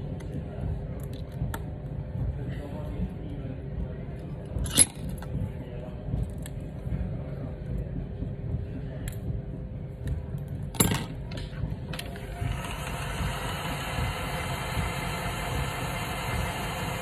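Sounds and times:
low background hum: 0.0 - 17.0
heat gun blowing hot air: 12.4 - 17.0.

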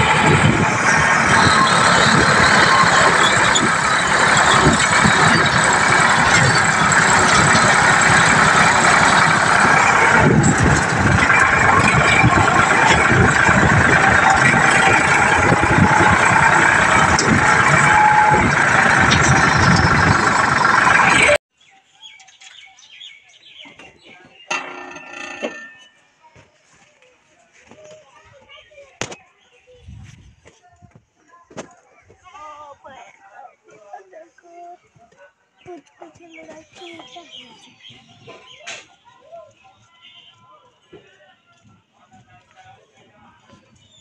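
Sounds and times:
tractor diesel engine running: 0.0 - 21.4.

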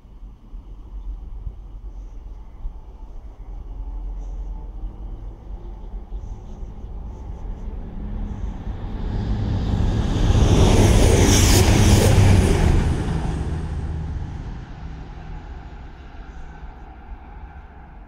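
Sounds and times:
steady low hum: 0.0 - 18.0
vehicle passing by: 7.0 - 16.6.

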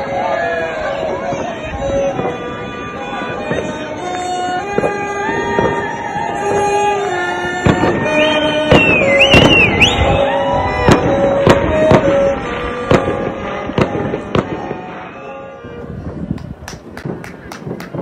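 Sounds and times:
fireworks banging: 1.3 - 10.2, 10.8 - 15.1, 16.0 - 18.0
high wavering whistle: 8.0 - 10.8.

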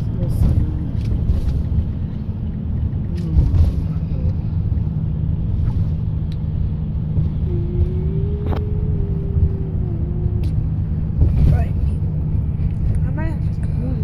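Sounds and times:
car cabin rumble: 0.0 - 14.0.

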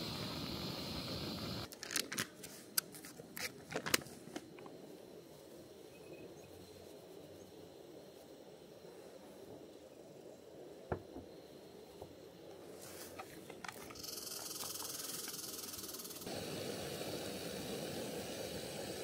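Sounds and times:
burner flame rushing: 0.0 - 1.7, 16.2 - 19.0
gas hissing: 0.0 - 1.7, 7.0 - 19.0.

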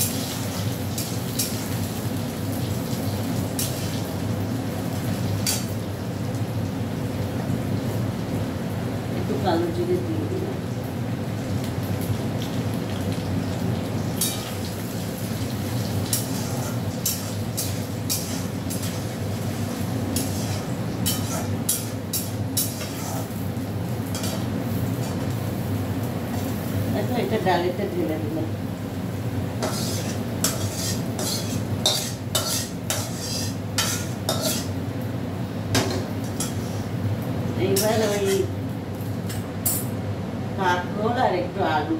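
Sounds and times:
onions sizzling in hot oil: 0.0 - 39.9
metal spatula scraping pan: 16.1 - 19.1, 20.2 - 23.4, 24.1 - 25.2, 29.6 - 34.7, 37.8 - 38.5.

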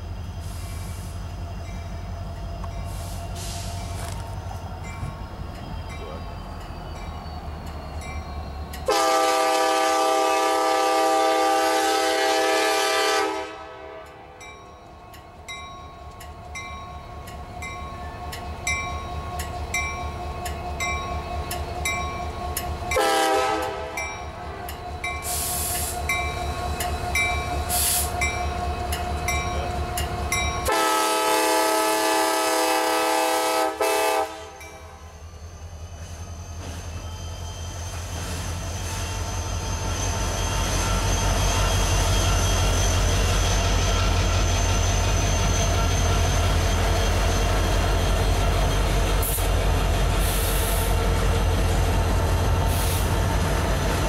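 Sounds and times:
diesel locomotive rumble: 0.0 - 54.0
locomotive air horn blasts: 8.9 - 14.2, 23.0 - 24.0, 30.7 - 34.7
crossing signal bell ringing: 14.4 - 23.1, 26.0 - 30.8.

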